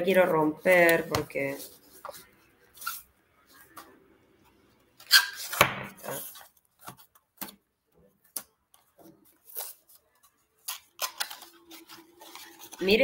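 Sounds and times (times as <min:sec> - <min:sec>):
paper rustles and taps: 0:00.8 - 0:01.3.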